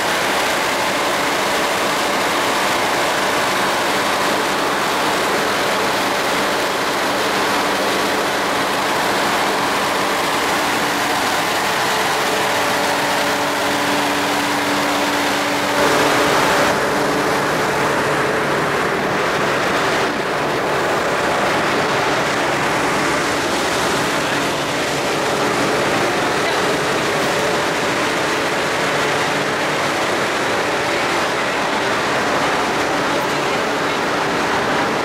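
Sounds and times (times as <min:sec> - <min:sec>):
ground support cart droning: 0:00.0 - 0:35.0.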